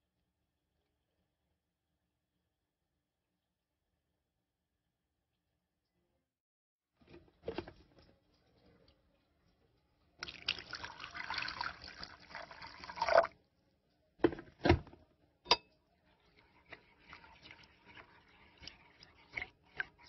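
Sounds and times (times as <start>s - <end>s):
water pouring into bowl: 10.2s - 13.4s, 16.0s - 20.0s
metal spoon clinking on bowl: 15.5s - 15.8s
spoon stirring paste: 15.5s - 20.0s.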